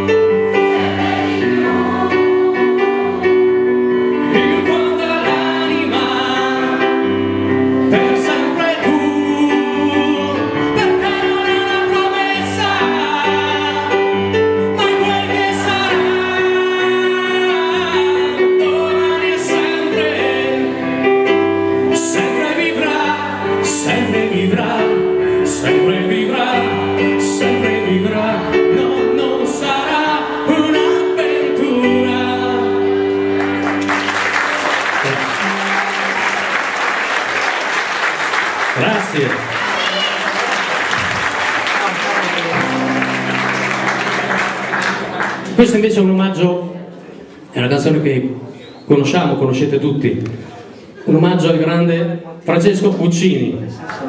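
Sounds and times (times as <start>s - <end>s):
electric keyboard: 0.0s - 48.6s
man singing into a microphone: 4.1s - 33.3s.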